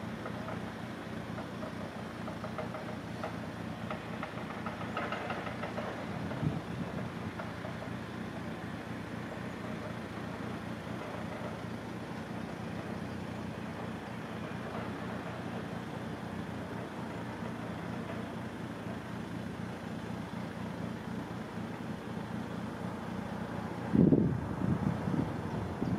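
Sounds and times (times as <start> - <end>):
engine idling: 0.0 - 25.9.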